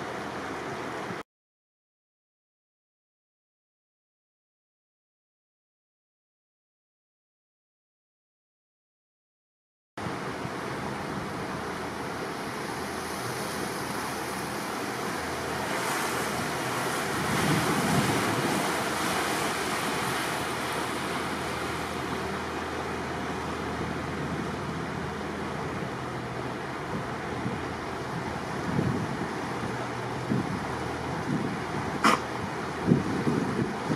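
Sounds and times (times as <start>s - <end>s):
faint low engine hum: 0.0s - 1.2s, 10.0s - 33.9s
wind and water rushing: 0.0s - 1.2s, 10.0s - 33.9s.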